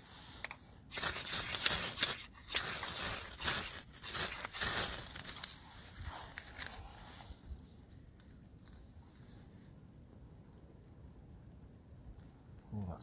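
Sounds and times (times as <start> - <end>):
fire steel scraped with striker: 0.0 - 6.8.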